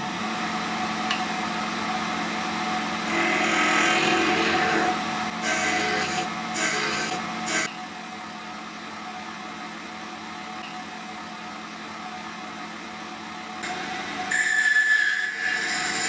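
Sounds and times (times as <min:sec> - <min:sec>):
lathe motor hum: 0:02.9 - 0:07.7
turning tool cutting wood: 0:03.0 - 0:07.7, 0:13.6 - 0:16.0.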